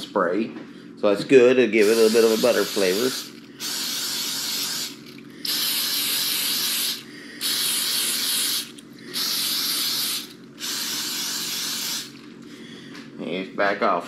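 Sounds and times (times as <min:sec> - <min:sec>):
aerosol spray hissing: 0:01.8 - 0:12.2.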